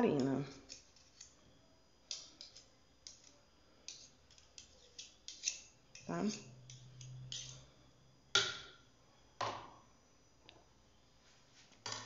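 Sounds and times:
knife scraping metal spoon: 0.2 - 1.4, 2.1 - 7.8.

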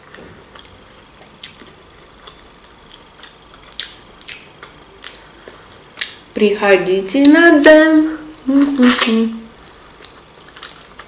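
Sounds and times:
chewing crispy fried chicken: 0.0 - 6.4, 9.5 - 11.0.

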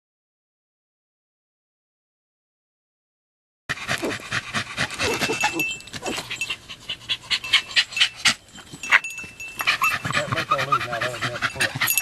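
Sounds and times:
dog panting rapidly: 3.7 - 12.0.

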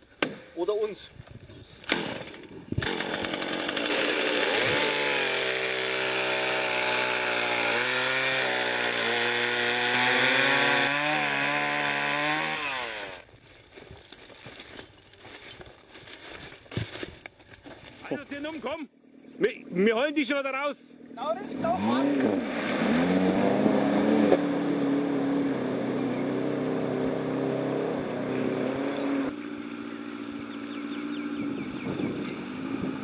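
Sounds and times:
chainsaw cutting wood: 1.9 - 18.0, 21.6 - 29.3
knocks and rustling: 13.3 - 18.2.

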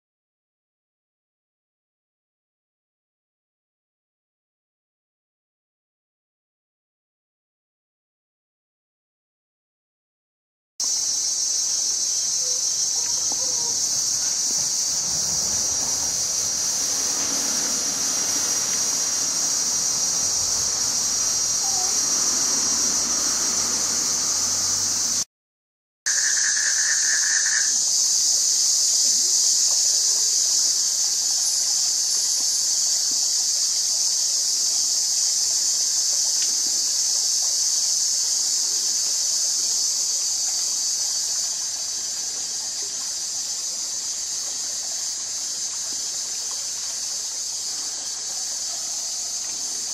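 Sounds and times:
high-pitched insect chorus: 10.8 - 25.3, 26.1 - 49.9.

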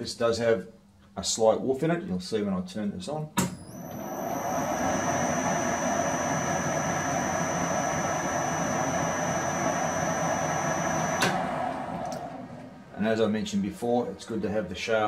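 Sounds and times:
metal lathe humming and whining: 3.7 - 12.9
lathe switch click: 11.2 - 11.4.

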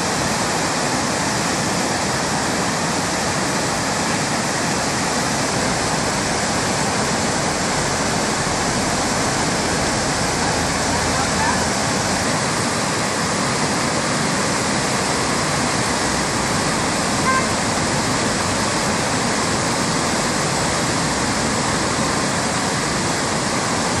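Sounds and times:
river rushing through rapids: 0.0 - 24.0.

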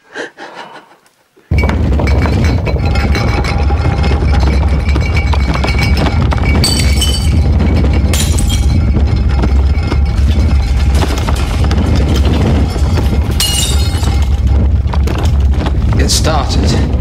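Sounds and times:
ringing glass: 1.5 - 14.5
deep rumble: 1.5 - 17.0
glass bottles rattling: 1.5 - 17.0.

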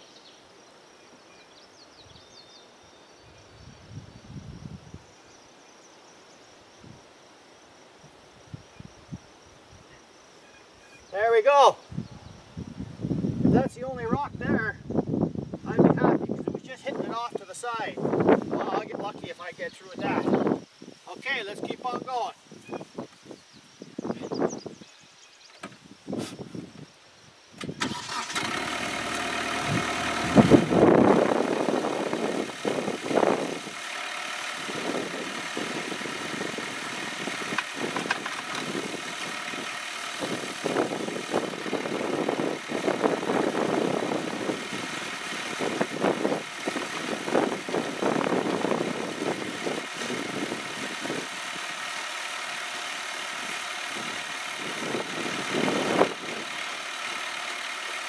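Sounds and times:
diesel tractor engine running: 27.6 - 58.0
auger boring into soil: 27.7 - 58.0.

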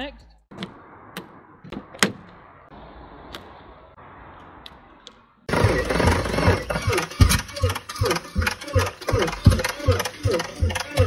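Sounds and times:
car engine cranking unevenly: 5.5 - 11.0.

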